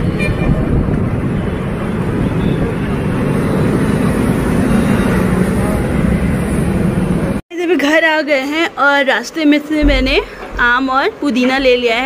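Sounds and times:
vehicle road noise rumble: 0.0s - 7.4s.

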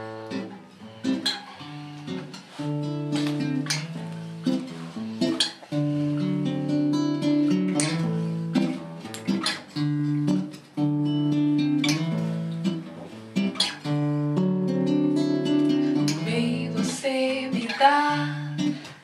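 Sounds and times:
acoustic guitar strumming: 0.0s - 19.0s.

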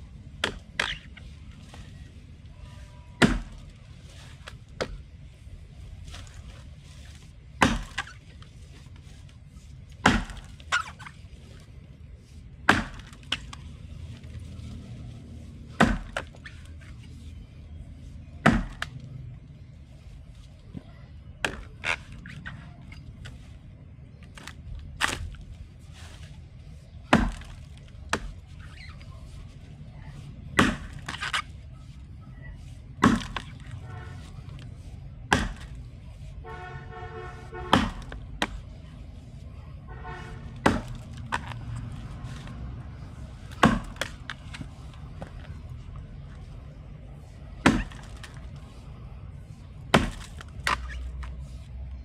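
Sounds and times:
axe chopping wood: 0.3s - 1.1s, 3.2s - 3.8s, 4.4s - 5.1s, 7.5s - 8.3s, 9.9s - 11.0s, 12.5s - 13.7s, 15.6s - 16.7s, 18.4s - 19.0s, 21.4s - 21.9s, 24.3s - 25.5s, 27.0s - 28.6s, 30.4s - 31.4s, 32.9s - 33.8s, 35.2s - 35.9s, 37.4s - 38.7s, 40.4s - 42.5s, 43.3s - 45.6s, 47.5s - 48.8s, 49.8s - 51.4s.

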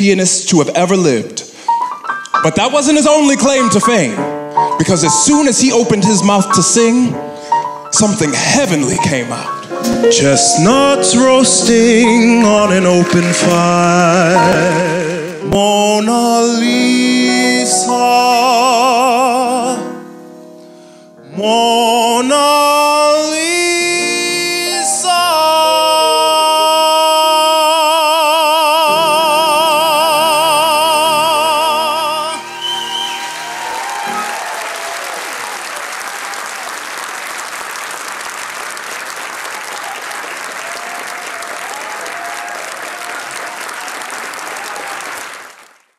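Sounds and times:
instrumental accompaniment: 1.7s - 21.3s
man singing a ballad: 3.0s - 7.2s, 7.9s - 20.1s, 21.2s - 32.6s
audience applauding: 11.2s - 15.5s, 32.2s - 45.9s.

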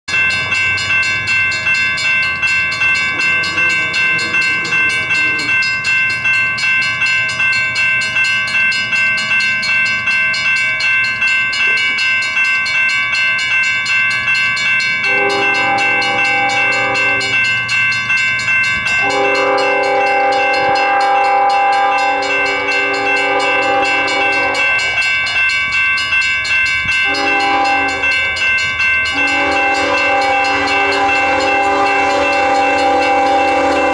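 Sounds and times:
crossing bell ringing: 0.1s - 33.9s
locomotive air horn blasts: 15.0s - 17.4s, 19.0s - 25.1s, 27.0s - 28.3s, 29.1s - 33.9s.

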